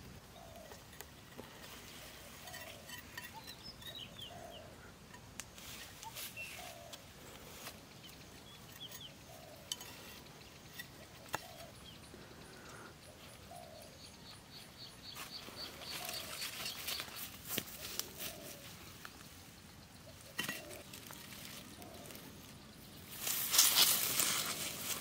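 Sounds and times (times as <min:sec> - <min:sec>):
bird cooing: 0:00.0 - 0:05.0, 0:05.9 - 0:07.7, 0:08.7 - 0:14.3, 0:15.4 - 0:19.0, 0:20.0 - 0:22.5
high bird chirps: 0:02.4 - 0:04.7.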